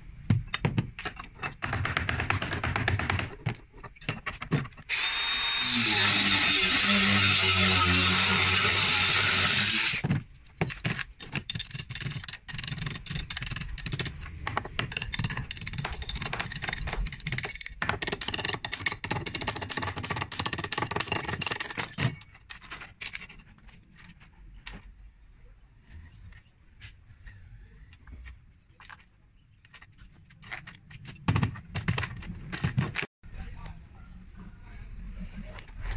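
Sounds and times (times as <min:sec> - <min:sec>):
angle grinder cutting steel wire: 0:04.9 - 0:10.1.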